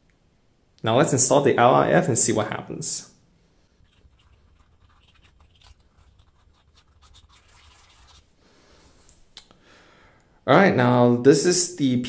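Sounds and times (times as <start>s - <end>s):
faint scratches and clicks: 3.8s - 8.3s.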